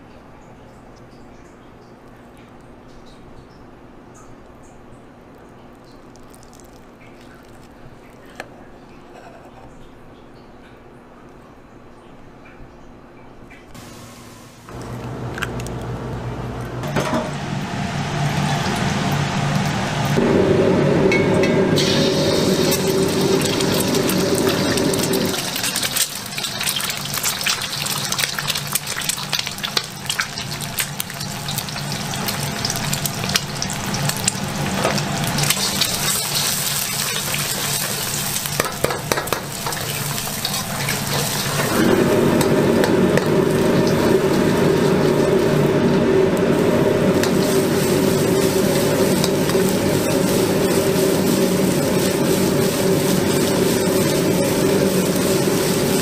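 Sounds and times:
eggs sizzling in hot oil: 6.0s - 8.4s, 16.6s - 56.0s
low hum: 13.8s - 26.0s, 40.3s - 56.0s.

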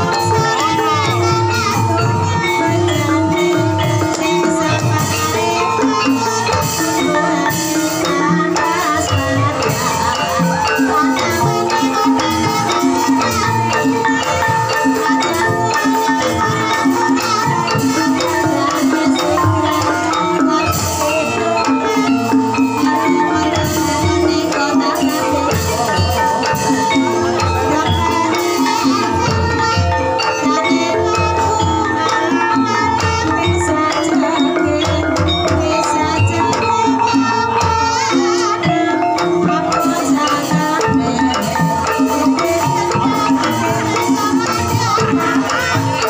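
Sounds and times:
drums beating: 0.0s - 46.0s.

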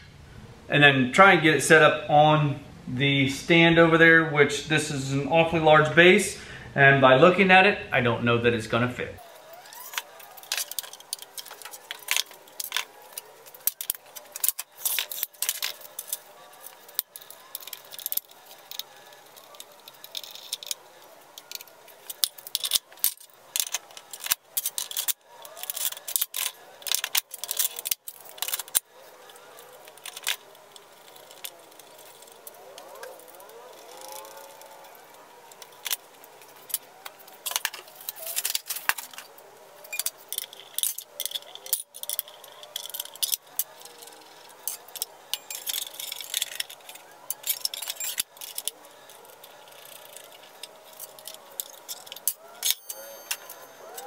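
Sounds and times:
metal parts clinking on workbench: 9.5s - 28.8s, 29.6s - 34.7s, 39.9s - 54.0s.

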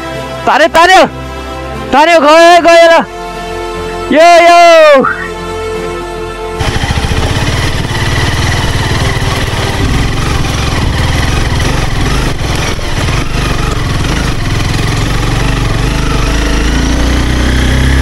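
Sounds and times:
road and wind noise: 6.0s - 18.0s
motorcycle engine running: 6.6s - 18.0s.

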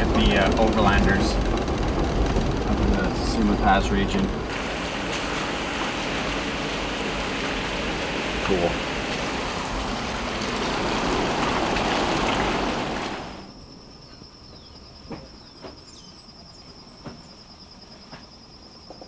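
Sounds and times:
vehicle rushing on dirt track: 0.0s - 13.5s
bird chirps: 14.0s - 17.8s.

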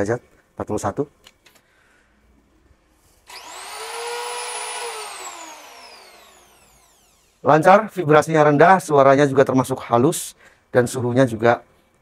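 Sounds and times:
electric planer whining: 3.3s - 7.4s.

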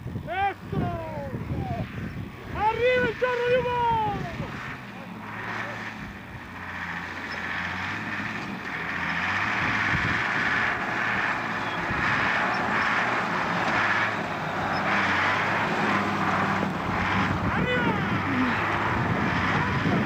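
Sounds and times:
tyre and road noise: 0.0s - 20.0s
vehicle engine running: 0.0s - 20.0s.

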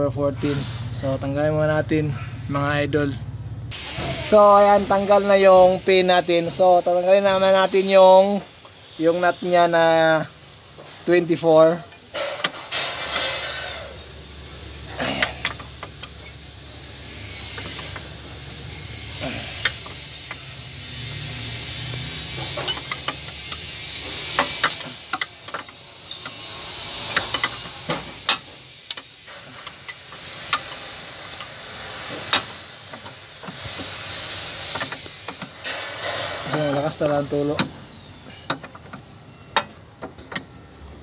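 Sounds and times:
steady hiss: 3.7s - 38.8s
wrench clinking on metal: 11.6s - 16.9s.

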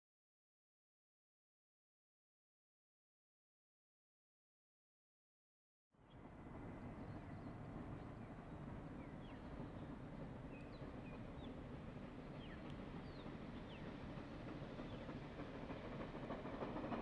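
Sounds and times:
distant steam train rumble: 6.0s - 17.0s
small birds chirping: 12.3s - 15.2s.

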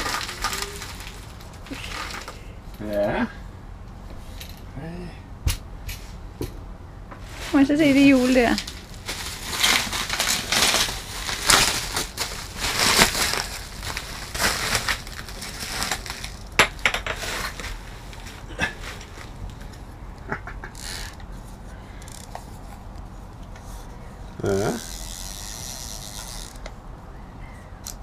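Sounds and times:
plastic bag crinkling: 0.0s - 2.4s, 7.6s - 19.4s.

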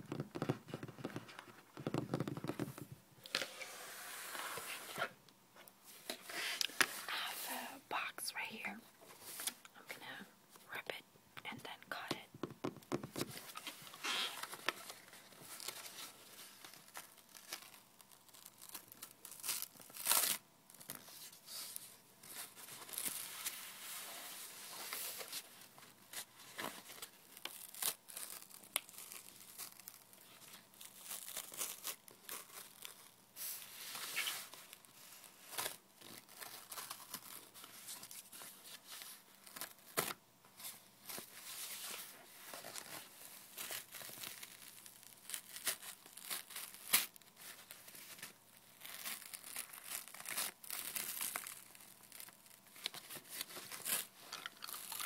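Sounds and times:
cardboard tearing: 42.6s - 55.0s.

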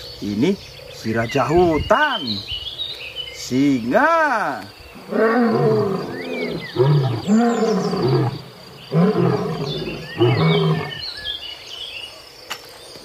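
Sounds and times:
lion roaring: 5.0s - 11.0s.

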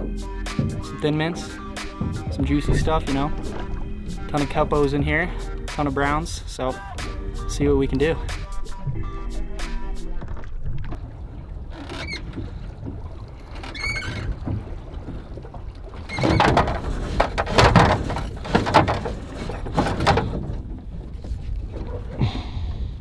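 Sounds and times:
oar strokes splashing: 0.0s - 8.8s, 9.7s - 23.0s
low rumble of wind and water: 0.0s - 23.0s
oars squeaking in oarlocks: 0.1s - 5.8s, 11.6s - 14.7s, 16.0s - 22.2s.

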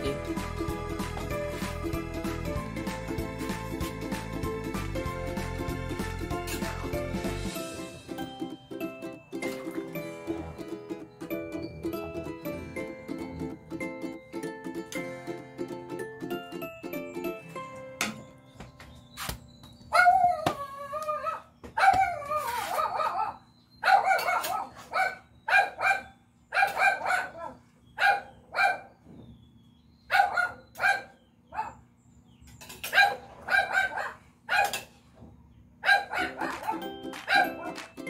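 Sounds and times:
dog barking: 21.8s - 28.9s, 30.1s - 31.8s, 32.9s - 34.9s, 35.8s - 37.8s.

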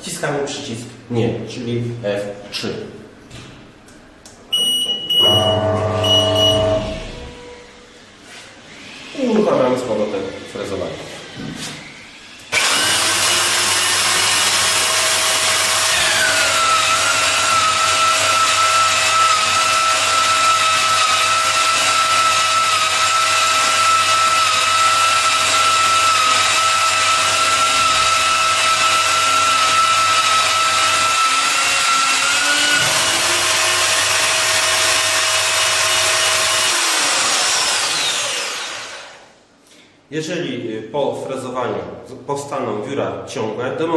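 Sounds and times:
electric pipe facing tool whining: 4.6s - 8.0s, 8.7s - 39.3s.

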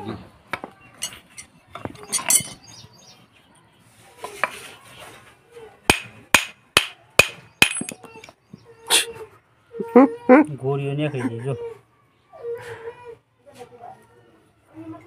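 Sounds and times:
hammer striking metal hub: 5.9s - 8.0s.

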